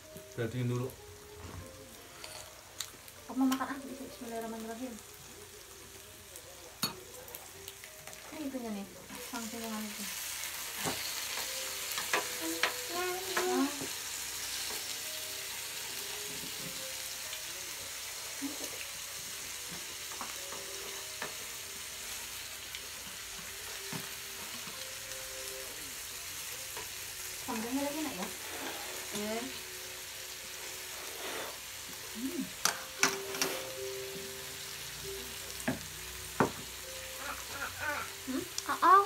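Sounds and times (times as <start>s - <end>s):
meat sizzling on a grill pan: 0.0s - 39.0s
utensils clicking and scraping a pan: 2.1s - 3.8s, 10.7s - 13.9s, 27.5s - 29.4s, 32.6s - 33.8s.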